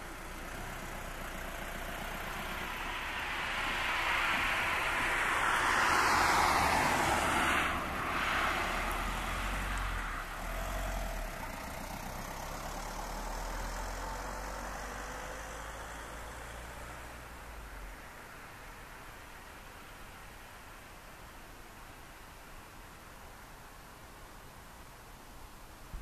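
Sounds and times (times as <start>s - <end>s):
cars passing close by: 0.0s - 20.4s.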